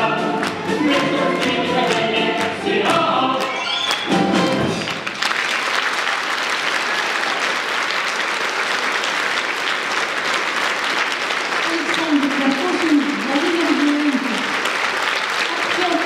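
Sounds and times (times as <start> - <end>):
voices singing: 0.0 - 3.8
folk-instrument orchestra: 0.0 - 5.1
audience applause: 3.4 - 16.0.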